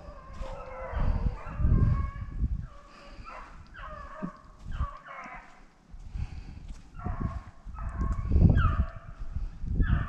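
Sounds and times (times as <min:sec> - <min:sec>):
hounds baying: 0:00.0 - 0:05.7, 0:07.0 - 0:09.2.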